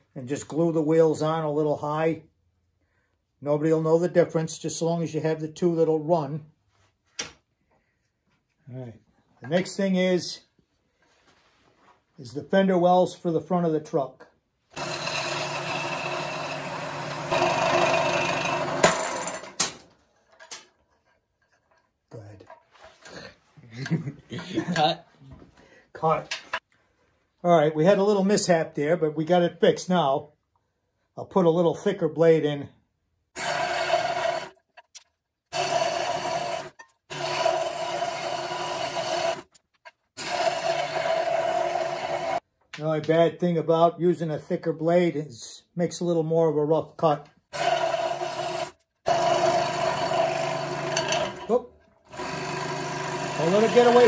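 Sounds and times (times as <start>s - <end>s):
scroll saw cutting wood: 14.7s - 19.4s, 33.4s - 34.9s, 35.5s - 42.4s, 47.5s - 54.0s.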